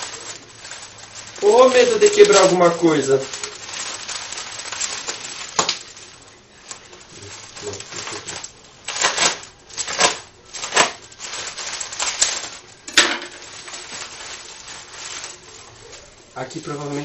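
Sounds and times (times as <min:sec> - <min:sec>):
bubble wrap rustling and crinkling: 0:00.0 - 0:17.0
sharp bubble wrap crackles: 0:00.0 - 0:17.0.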